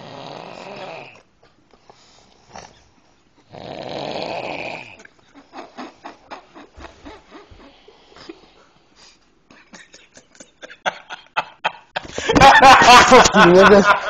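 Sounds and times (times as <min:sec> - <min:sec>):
man snoring: 0:00.0 - 0:01.2, 0:03.5 - 0:05.0.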